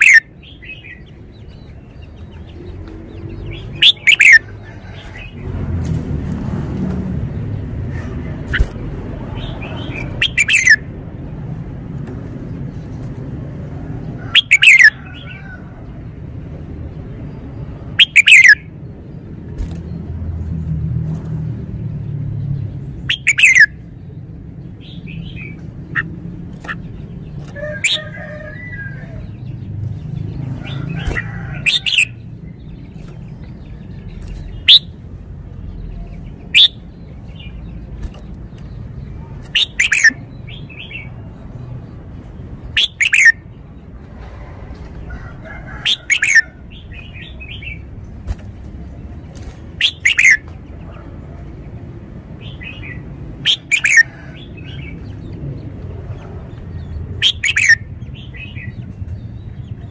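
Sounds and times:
bird whistling song: 0.0 - 1.0, 3.4 - 4.4, 9.8 - 10.8, 14.4 - 15.0, 18.0 - 18.6, 23.1 - 23.8, 34.6 - 35.0, 36.5 - 36.8, 39.6 - 41.1, 42.8 - 43.4, 45.9 - 47.8, 49.8 - 50.4, 52.6 - 54.1, 57.2 - 58.8.

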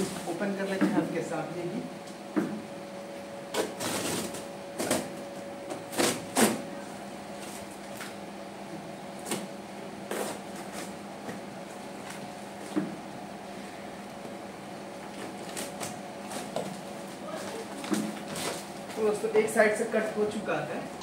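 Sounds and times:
blade slitting packing tape: 3.5 - 5.0, 5.9 - 6.6.

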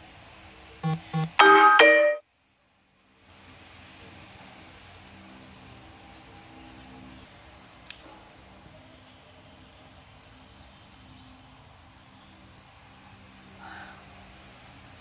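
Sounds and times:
electronic chime jingle: 0.8 - 2.2.

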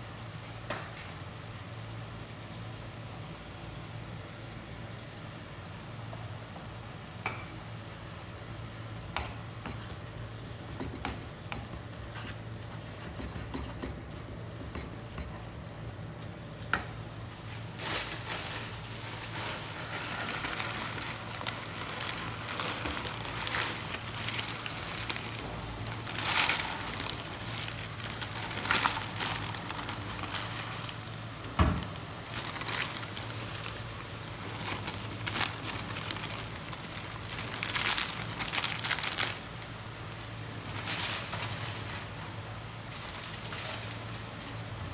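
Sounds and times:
steady low hum: 0.0 - 44.9
noodles sizzling in a wok: 17.0 - 44.8.

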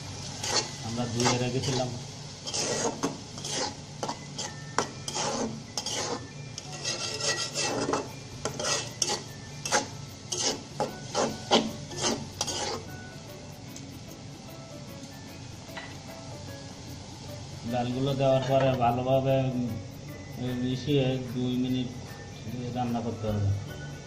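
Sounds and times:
metal spatula scraping a wok: 0.1 - 13.1.

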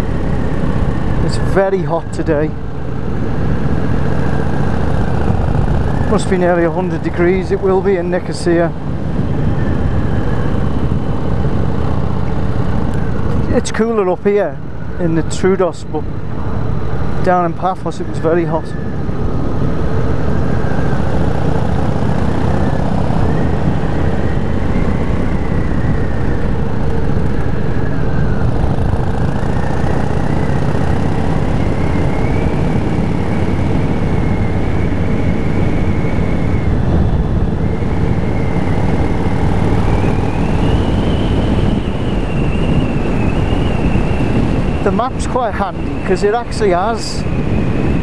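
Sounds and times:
motorcycle engine running: 19.3 - 45.6.

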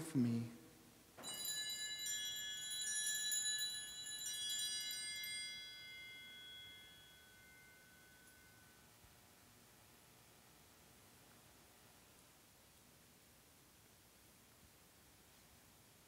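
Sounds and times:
small bells ringing: 1.2 - 9.0.

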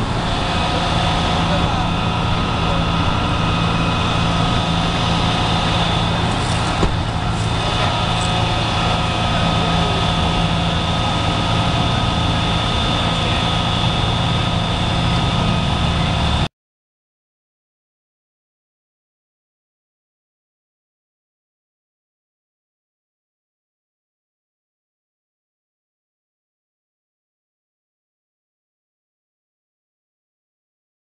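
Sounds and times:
heavy vehicle engines idling: 0.0 - 16.5.

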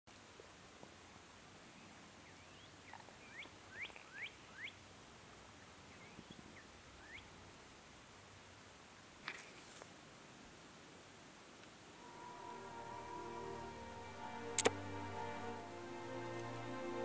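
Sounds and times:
bird chirping: 1.8 - 4.8, 5.6 - 7.4.

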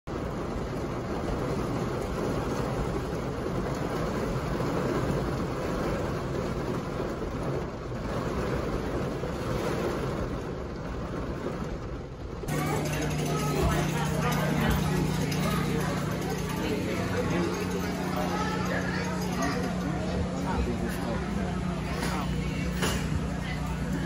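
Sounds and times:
heavy rain on car roof: 0.1 - 24.0.

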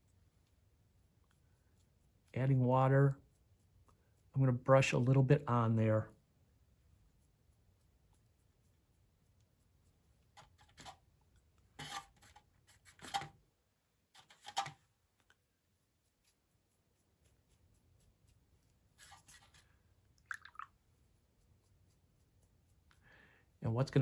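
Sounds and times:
paintbrush scratching and dabbing: 0.0 - 13.3, 14.1 - 24.0.

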